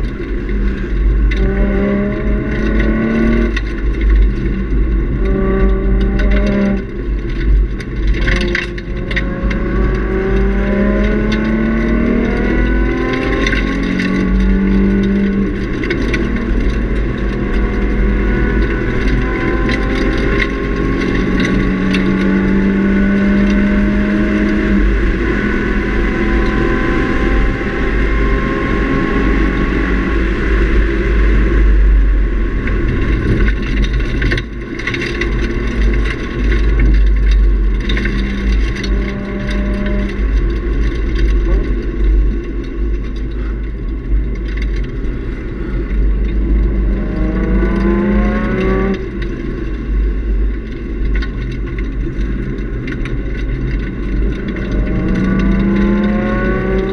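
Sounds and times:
car engine revving: 0.0s - 56.9s
road and wind rumble: 0.0s - 56.9s.

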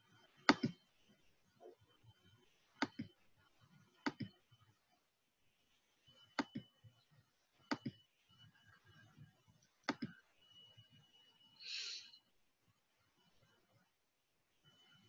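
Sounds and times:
faint thin steady whine: 0.0s - 15.0s
computer mouse clicking: 0.4s - 0.8s, 2.8s - 3.2s, 4.0s - 4.4s, 6.3s - 6.7s, 7.7s - 8.0s, 9.8s - 10.2s.

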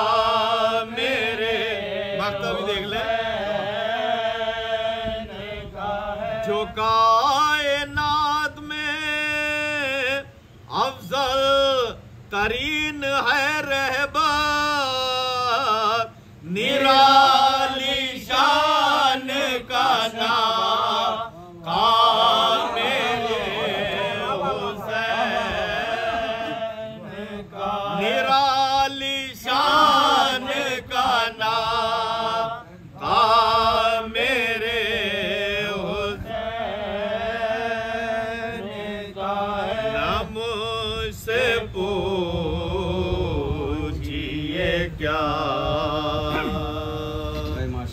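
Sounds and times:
men chanting an elegy: 14.3s - 47.9s.

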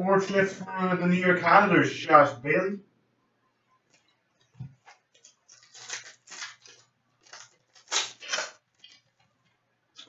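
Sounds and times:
plastic wrapper crinkling: 3.9s - 9.6s.

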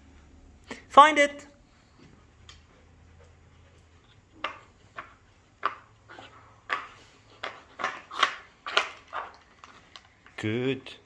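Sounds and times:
puzzle board pegs clacking: 6.6s - 10.4s.

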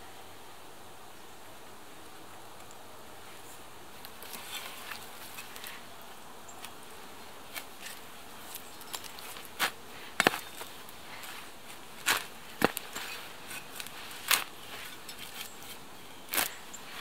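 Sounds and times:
steady hiss: 0.0s - 17.0s
spade digging into soil: 7.5s - 17.0s.

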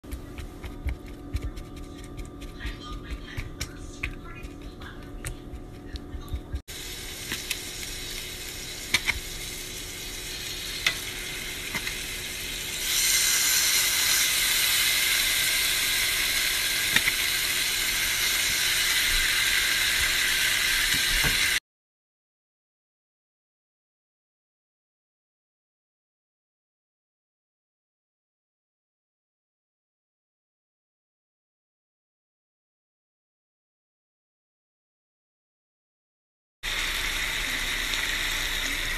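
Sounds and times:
fork stirring in a bowl: 0.1s - 6.6s
chicken frying in hot oil: 6.7s - 21.6s, 36.6s - 38.9s.

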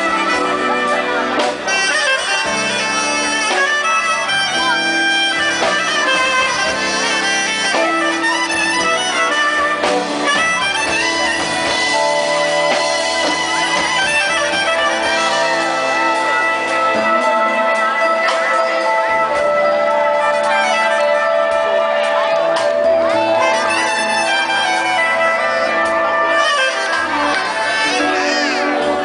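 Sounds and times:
live band with drums and guitar: 0.0s - 29.0s
soprano saxophone melody: 0.0s - 29.0s.

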